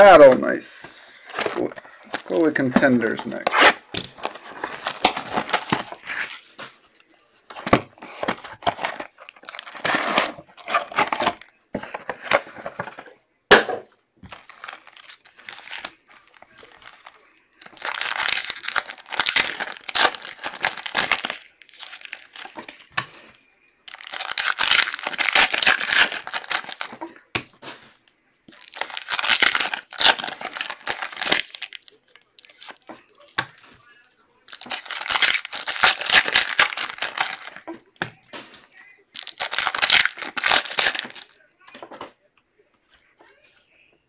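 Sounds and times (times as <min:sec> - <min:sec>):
wrappers being torn and crinkled: 0:14.3 - 0:22.7, 0:23.9 - 0:27.3, 0:28.5 - 0:32.8, 0:34.5 - 0:37.7, 0:39.1 - 0:41.4.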